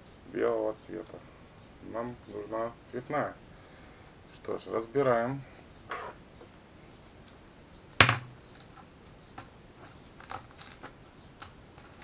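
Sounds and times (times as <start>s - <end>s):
sharp knock: 8.0s - 8.4s.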